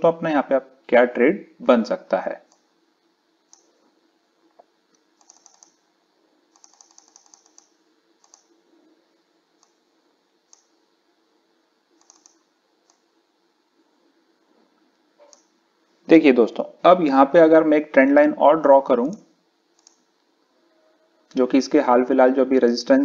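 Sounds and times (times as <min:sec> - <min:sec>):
computer mouse clicks: 0:03.5 - 0:03.8, 0:04.9 - 0:05.8, 0:06.5 - 0:08.6, 0:09.6 - 0:09.8, 0:10.5 - 0:10.8, 0:12.0 - 0:13.1, 0:15.2 - 0:15.5, 0:19.1 - 0:20.1.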